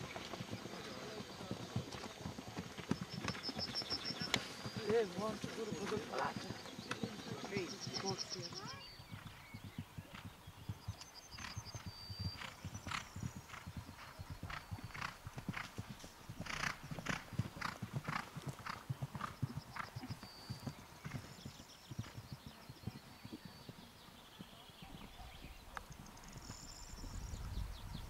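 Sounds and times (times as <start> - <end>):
horse hooves galloping on grass: 0.0 - 28.0.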